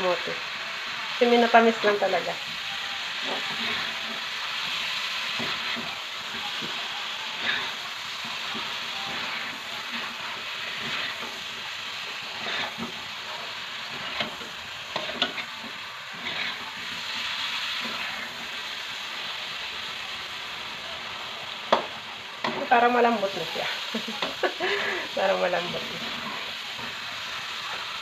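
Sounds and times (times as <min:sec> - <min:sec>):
food sizzling in a wok: 0:00.0 - 0:28.0
metal spatula scraping pan: 0:01.3 - 0:18.7.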